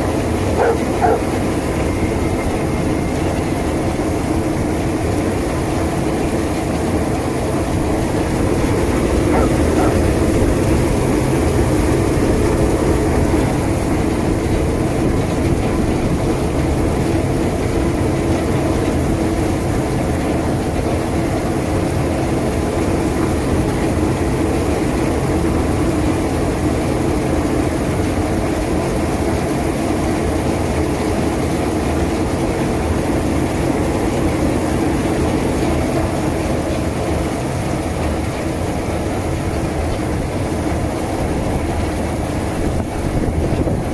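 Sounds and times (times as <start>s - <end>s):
machine motor droning: 0.4s - 18.2s.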